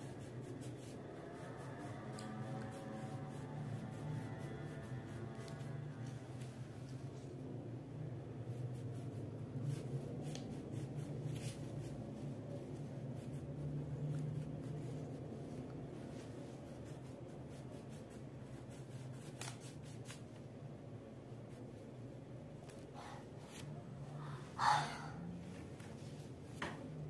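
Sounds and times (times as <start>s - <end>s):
crayon scratching on paper: 0.0s - 6.1s, 8.5s - 20.3s.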